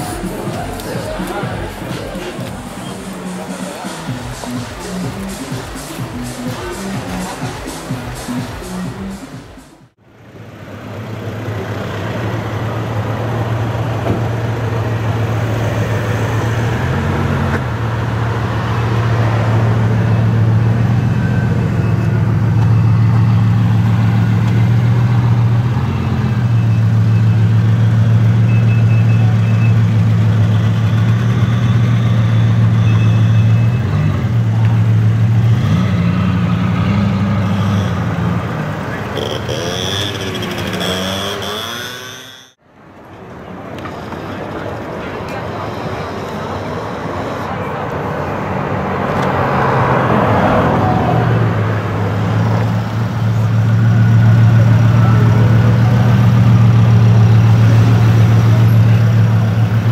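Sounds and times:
car engine idling: 0:00.0 - 0:15.3.

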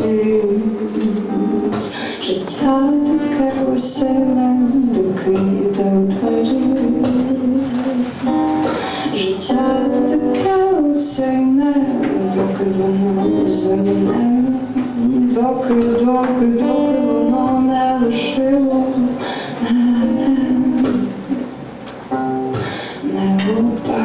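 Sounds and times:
woman singing slow song: 0:00.0 - 0:21.5, 0:22.5 - 0:24.0.

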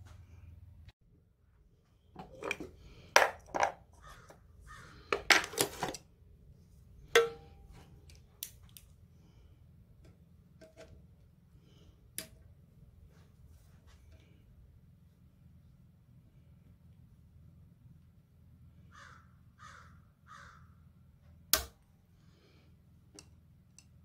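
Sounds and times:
metal hand tools clanking: 0:07.2 - 0:07.8.

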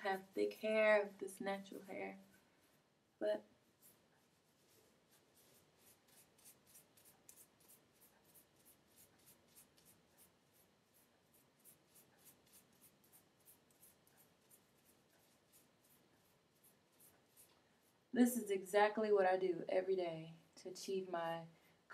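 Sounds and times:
fingers rustling through wet hair: 0:03.6 - 0:18.1.

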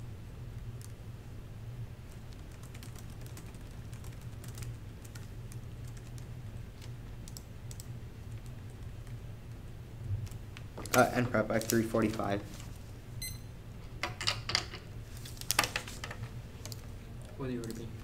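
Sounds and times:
low room hum: 0:00.0 - 0:18.0
laptop keyboard typing: 0:02.1 - 0:09.6, 0:16.6 - 0:18.0.

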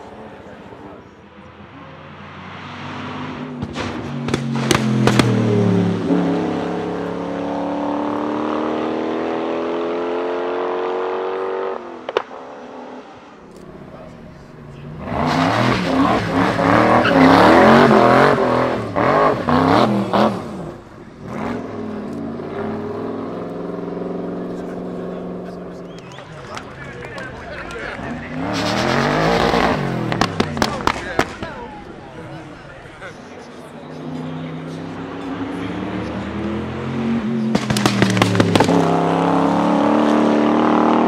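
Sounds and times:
car engine at full throttle: 0:00.0 - 0:41.0
exhaust bangs: 0:02.2 - 0:12.7, 0:13.7 - 0:41.0
engine revving with pops: 0:03.4 - 0:05.6, 0:12.0 - 0:12.4, 0:27.6 - 0:31.5, 0:37.4 - 0:41.0.

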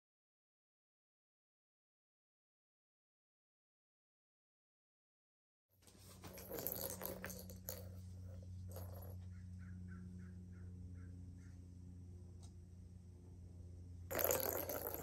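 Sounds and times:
steady low hum: 0:05.8 - 0:15.0
plastic balls clattering in tracks: 0:06.1 - 0:09.2, 0:14.1 - 0:15.0.

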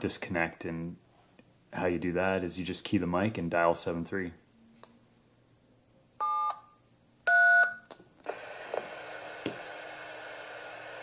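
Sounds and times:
steady radio hiss: 0:08.2 - 0:11.0.

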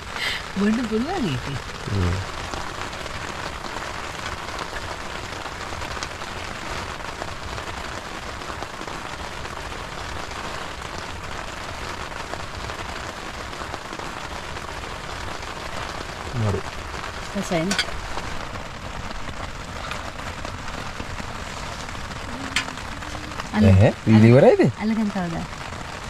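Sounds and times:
rain on tent fabric: 0:00.0 - 0:26.0.

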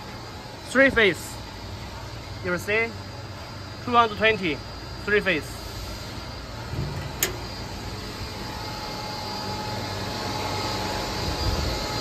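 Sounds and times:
electric motor hum: 0:06.4 - 0:12.0
sharp click: 0:06.8 - 0:07.5.

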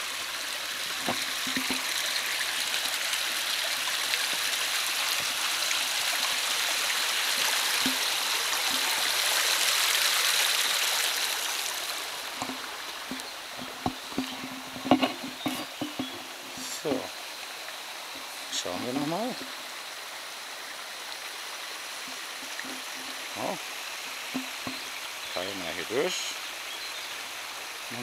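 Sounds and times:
brook rushing and babbling: 0:00.0 - 0:28.0
faint knocks: 0:12.3 - 0:16.2.

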